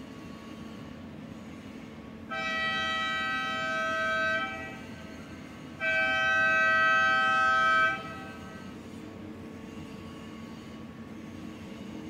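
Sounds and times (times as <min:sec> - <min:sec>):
chord horn blasts: 0:02.3 - 0:04.9, 0:05.8 - 0:08.6.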